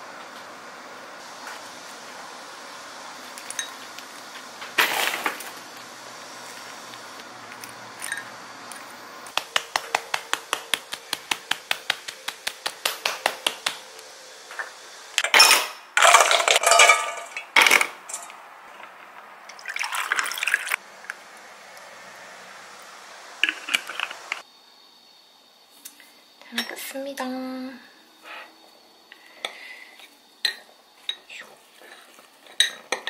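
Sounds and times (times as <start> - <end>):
liquid pouring and splashing: 19.5 - 20.8.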